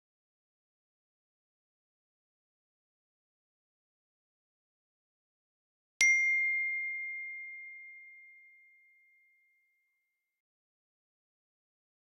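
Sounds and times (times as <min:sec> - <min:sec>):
bell-like notification ding: 0:06.0 - 0:09.4.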